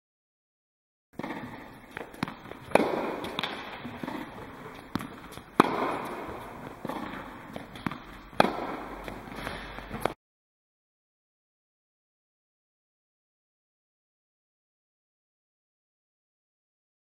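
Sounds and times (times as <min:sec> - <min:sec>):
racket hitting tennis ball: 0:01.2 - 0:10.2.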